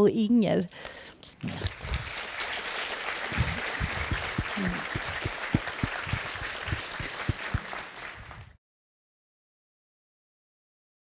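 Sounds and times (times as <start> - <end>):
audience applauding: 1.6 - 8.6.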